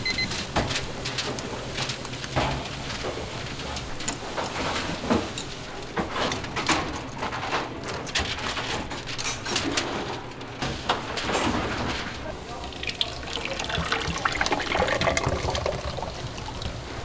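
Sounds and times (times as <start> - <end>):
knocks and clatter of handling: 0.1 - 12.5.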